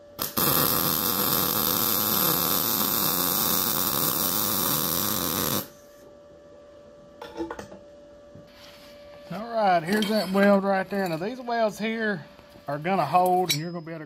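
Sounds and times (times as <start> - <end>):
welding arc buzzing: 0.0 - 5.8.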